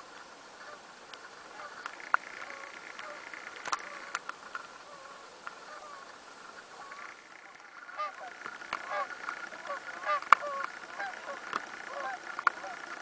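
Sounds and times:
faint wavering animal calls: 0.0 - 13.0
low outdoor hiss: 0.0 - 13.0
sharp clicks: 1.8 - 4.6, 10.1 - 13.0.

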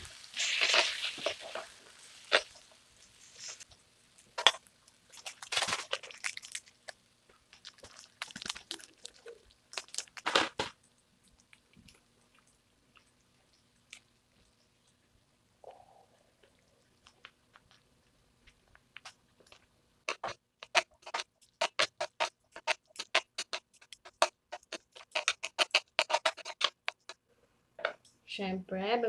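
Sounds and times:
plastic sachets crinkling and tearing: 5.1 - 10.8.

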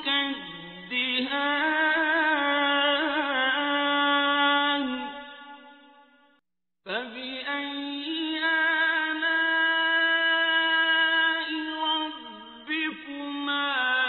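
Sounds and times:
man reciting melodically: 0.0 - 5.2, 6.9 - 14.0.

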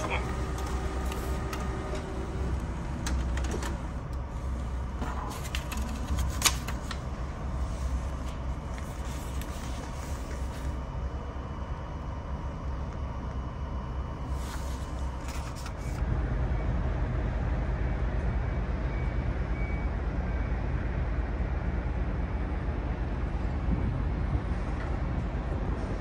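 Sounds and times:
outdoor rumble and hiss: 0.0 - 26.0.

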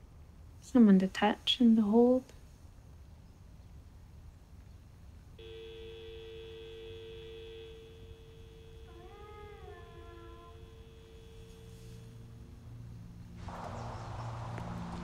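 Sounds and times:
cat meowing: 8.9 - 10.8.

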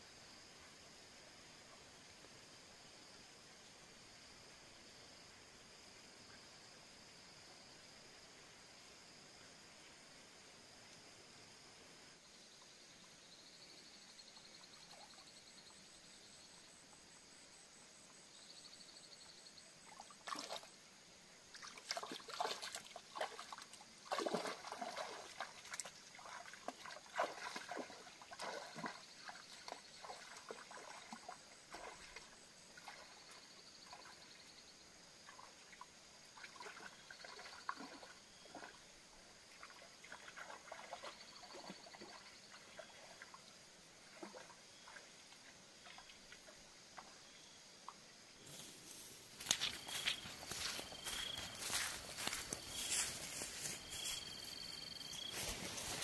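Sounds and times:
footsteps wading through muddy water: 21.5 - 34.2, 39.5 - 43.3, 48.5 - 56.0.

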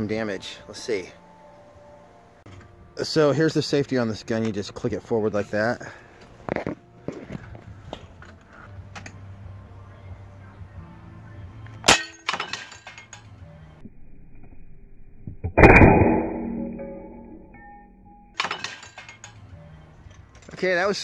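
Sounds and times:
tile target breaking: 15.4 - 17.6.

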